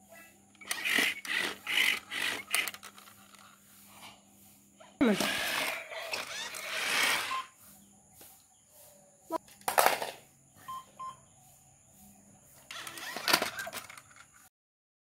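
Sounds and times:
toy robot puppy beeps: 0.6 - 2.9, 5.3 - 7.5, 10.7 - 11.2, 12.7 - 14.0.

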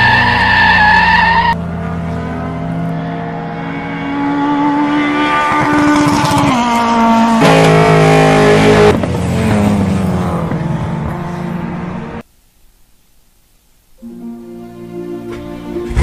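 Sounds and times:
tyres squealing in skid: 0.0 - 1.6
race car engine passing: 1.1 - 12.2.

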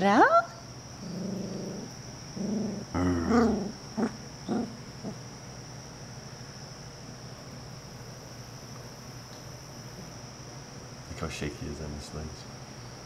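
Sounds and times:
puppy growl-whine: 1.0 - 5.2.

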